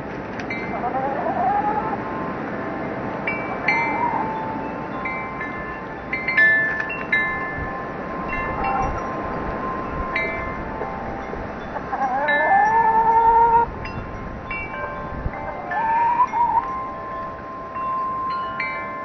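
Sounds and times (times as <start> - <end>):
wind chimes ringing: 0.0 - 0.9, 2.0 - 19.0
wind noise on microphone: 0.0 - 19.0
rising pitched call: 3.7 - 4.5, 15.5 - 16.7.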